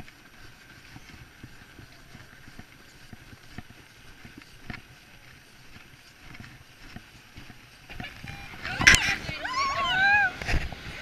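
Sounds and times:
footsteps on packed snow: 0.0 - 11.0.

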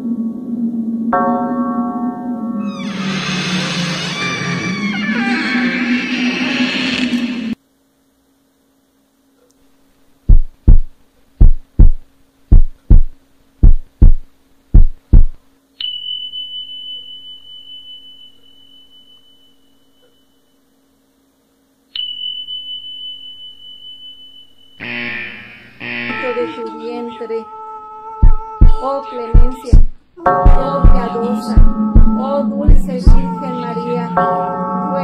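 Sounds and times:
heartbeat thumps: 10.3 - 15.4, 28.2 - 28.8, 29.4 - 33.3
high pure ringing tone: 15.7 - 26.7.

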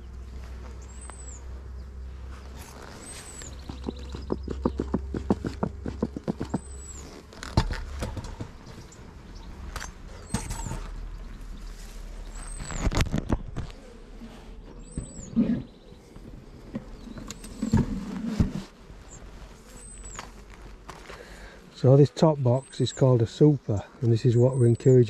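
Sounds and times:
bellows squeaking and puffing: 2.4 - 9.1, 12.1 - 20.3.

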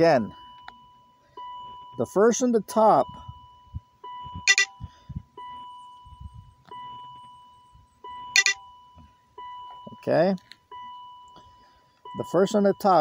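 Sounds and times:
dashboard warning chime: 0.0 - 13.0
short bright beeps: 4.4 - 5.0, 8.3 - 8.7.

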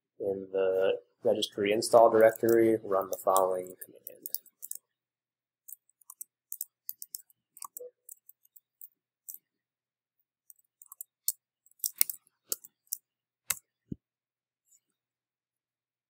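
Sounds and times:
keyboard typing: 2.0 - 4.8, 5.7 - 9.4, 10.5 - 13.6.

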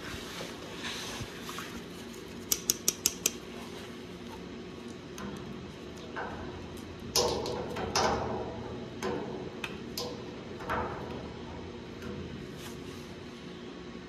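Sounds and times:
pliers clicking on metal: 2.5 - 3.4.

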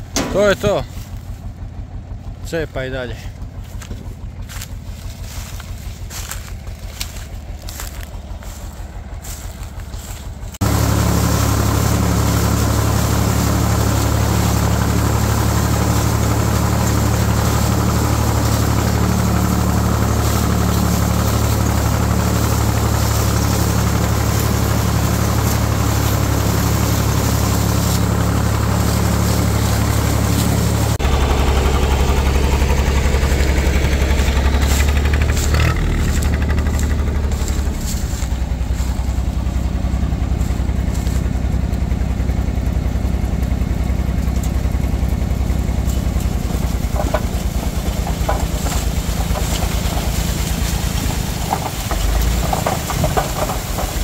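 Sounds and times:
tractor engine running: 0.0 - 54.0
machine mechanical clatter: 45.7 - 54.0.

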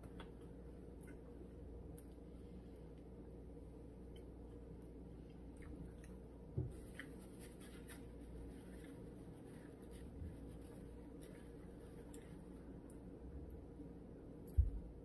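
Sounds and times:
steady low hum: 0.0 - 15.0
soft rustles: 6.6 - 12.8.

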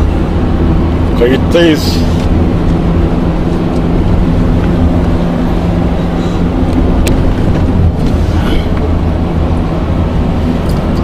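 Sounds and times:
car engine running: 0.0 - 11.0
tyre and road rumble: 0.0 - 11.0.

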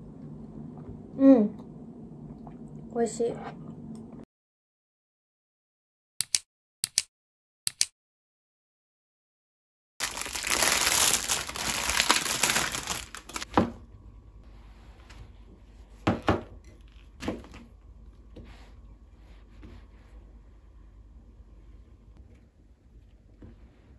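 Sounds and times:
plastic packaging crinkling: 10.0 - 13.6.

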